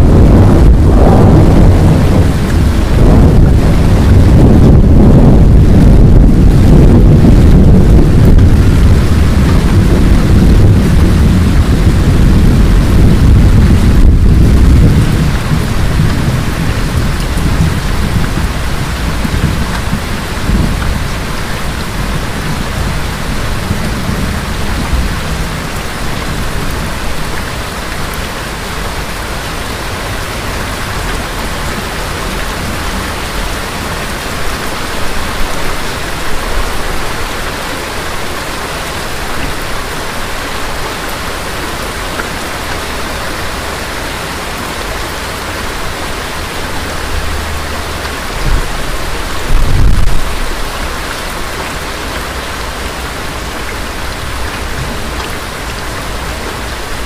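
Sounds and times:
thunder rumbling: 0.0 - 37.4, 38.0 - 57.0
steady rain: 0.0 - 57.0.

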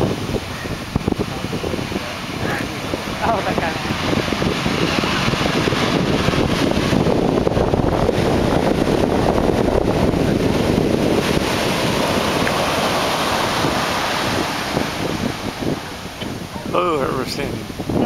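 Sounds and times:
ocean waves crashing: 0.0 - 18.0.

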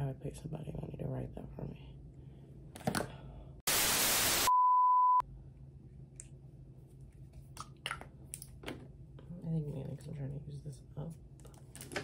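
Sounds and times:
white-noise static burst: 3.7 - 4.5
high-pitched beep: 4.4 - 5.2.

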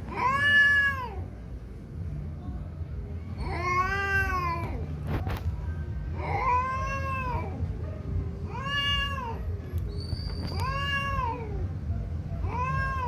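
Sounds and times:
cats yowling: 0.0 - 1.3, 3.3 - 4.8, 6.2 - 7.8, 8.4 - 13.0.

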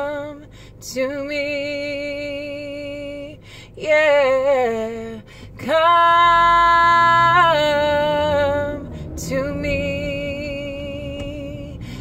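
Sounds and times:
woman singing unaccompanied: 0.0 - 11.9
breath: 0.5 - 0.8, 3.4 - 3.8, 5.2 - 5.6.

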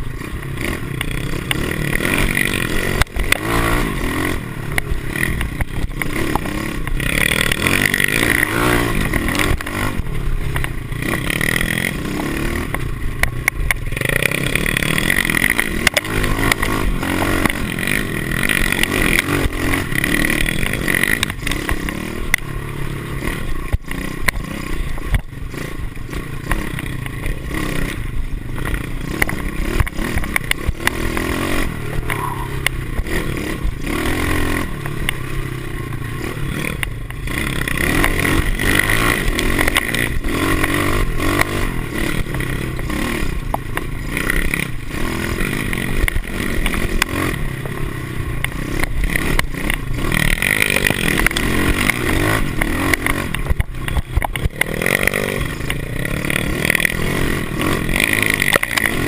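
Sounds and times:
bike knocks and rattles: 0.0 - 12.0, 12.6 - 45.0, 45.6 - 59.0
small motorbike engine revving: 0.0 - 59.0.

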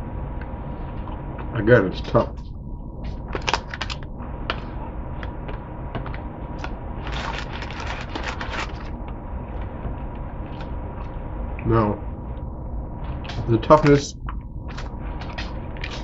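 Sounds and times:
low steady hum: 0.0 - 16.0
crackles of chewing: 6.0 - 11.2.

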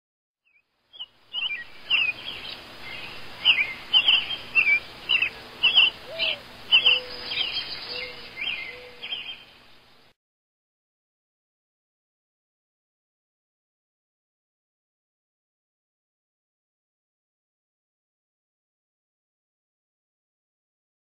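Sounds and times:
birds chirping: 0.5 - 10.1.

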